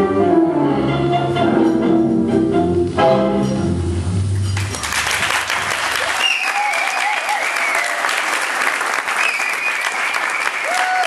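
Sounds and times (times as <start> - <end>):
tango music: 0.0 - 5.2
audience clapping: 4.5 - 11.0
high wavering cheer: 5.9 - 8.3, 9.2 - 11.0.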